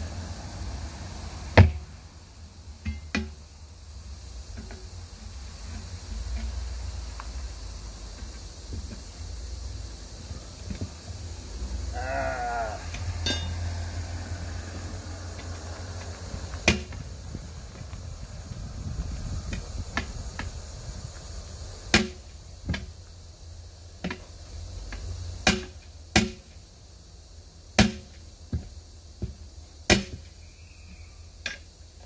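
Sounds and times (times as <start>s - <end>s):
tire irons clanking on steel wheel: 2.8s - 3.4s, 12.9s - 13.7s.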